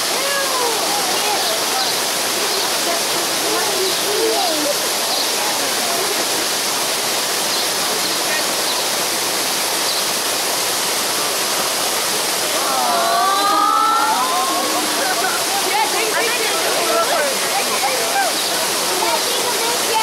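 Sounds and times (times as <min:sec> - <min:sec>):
faint voices: 0:00.0 - 0:06.6, 0:11.1 - 0:20.0
rushing falling water: 0:00.0 - 0:20.0.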